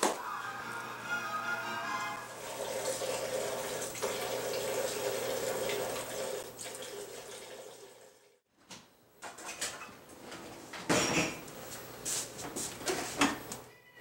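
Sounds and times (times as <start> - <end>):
liquid pouring and splashing: 2.4 - 8.2.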